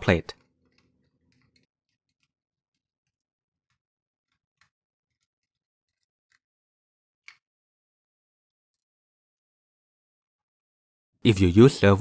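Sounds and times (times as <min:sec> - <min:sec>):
small plastic clicks and ticks: 0:00.4 - 0:07.6.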